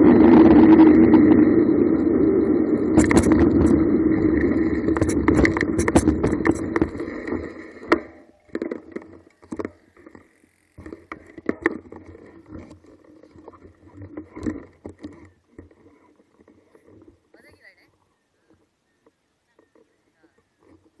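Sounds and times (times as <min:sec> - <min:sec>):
handheld camera knocks and rustles: 0:03.0 - 0:03.8, 0:04.9 - 0:10.2, 0:10.8 - 0:17.7
faint steady background noise: 0:07.0 - 0:21.0.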